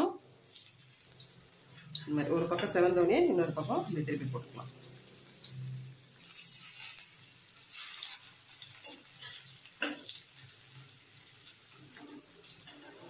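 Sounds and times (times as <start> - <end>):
fish sizzling in oil: 0.0 - 13.0
metal spatula scraping and tapping: 6.4 - 13.0.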